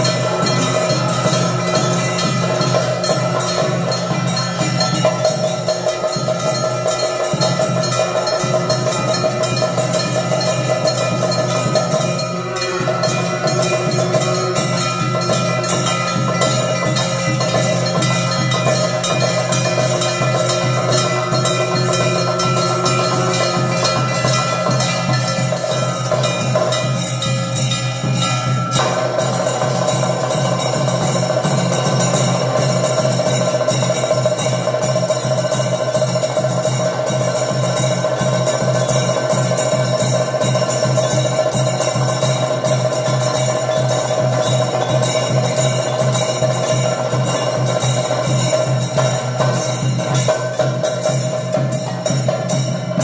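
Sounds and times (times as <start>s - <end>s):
brass gong clanging: 0.0s - 34.8s
bells ringing: 0.0s - 53.0s
drum: 0.0s - 53.0s.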